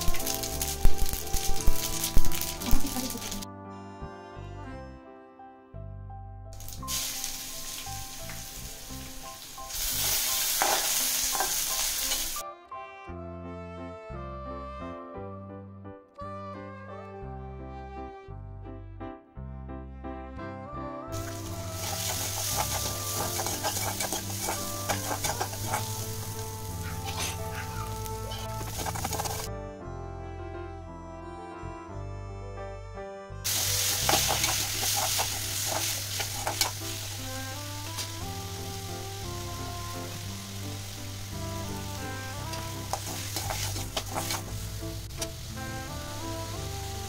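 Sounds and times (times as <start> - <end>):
garlic sizzling in hot oil: 0.0 - 3.4, 6.6 - 12.4, 21.2 - 29.5, 33.5 - 47.0
background music: 0.0 - 47.0
metal spoon scraping pan: 21.8 - 27.5, 28.3 - 29.5, 33.5 - 37.0, 42.5 - 44.6.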